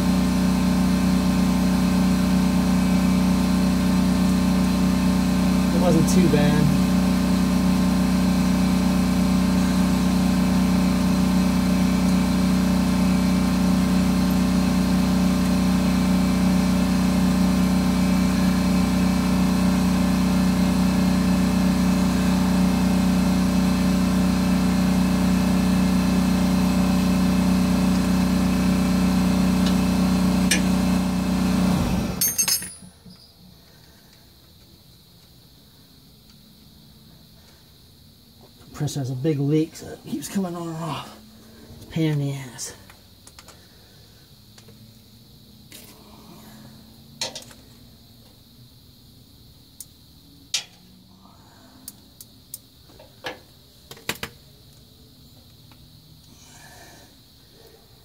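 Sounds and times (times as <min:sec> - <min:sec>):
air compressor humming: 0:00.0 - 0:34.6.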